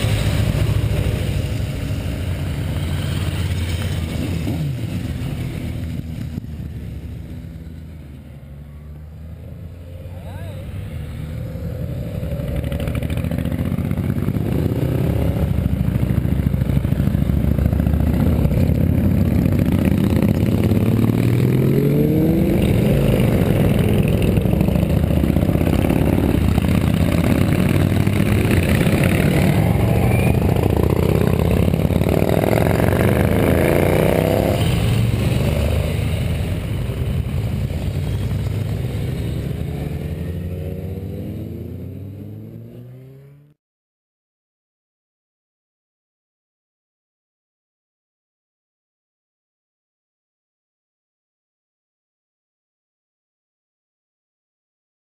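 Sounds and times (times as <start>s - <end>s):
motorcycles riding past: 0.0s - 43.6s.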